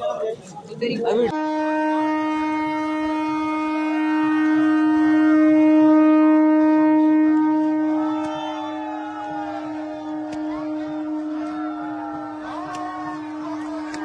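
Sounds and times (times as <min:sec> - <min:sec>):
train horn long note: 0:01.3 - 0:14.0
crowd shouting: 0:03.8 - 0:14.0.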